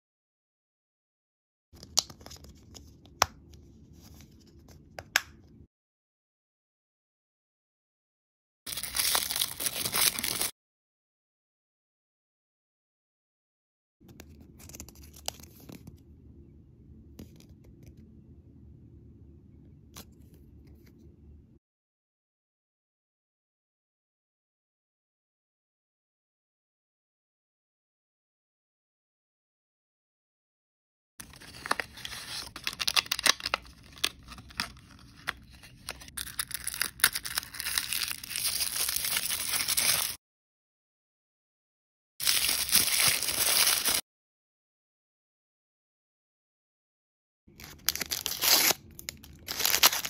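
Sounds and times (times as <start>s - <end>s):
plastic and cardboard crinkling: 31.2s - 40.2s, 42.2s - 44.0s, 47.6s - 50.0s
plastic and paper packaging crackling: 31.2s - 40.2s, 42.2s - 44.0s, 47.6s - 50.0s.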